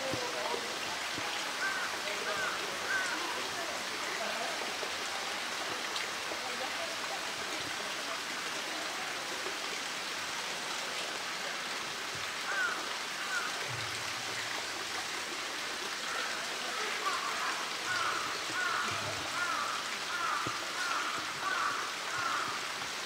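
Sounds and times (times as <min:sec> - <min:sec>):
flowing water: 0:00.0 - 0:23.0.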